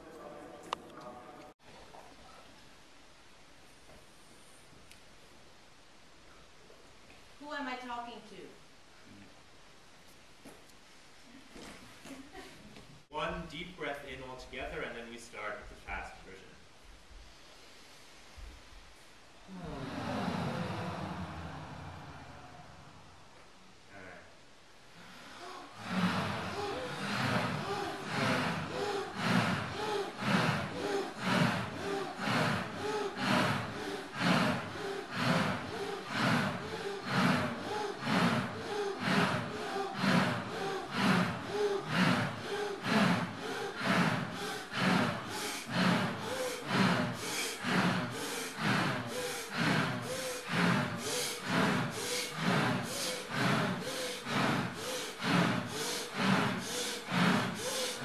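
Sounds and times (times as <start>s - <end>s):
group breathing hard: 19.3s - 23.6s, 24.9s - 58.0s.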